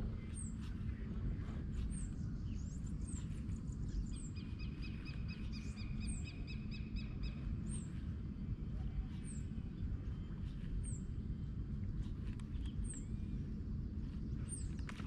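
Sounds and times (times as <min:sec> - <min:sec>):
wild birds calling: 0:00.0 - 0:08.4
steady low rumble: 0:00.0 - 0:15.0.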